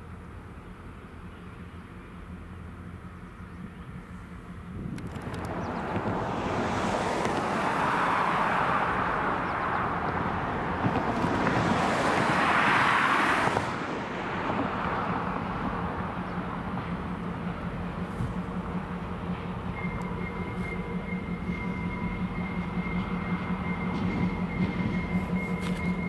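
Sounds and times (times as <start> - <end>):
diesel locomotive engine hum: 0.0 - 26.0
broad rushing noise: 4.2 - 21.2.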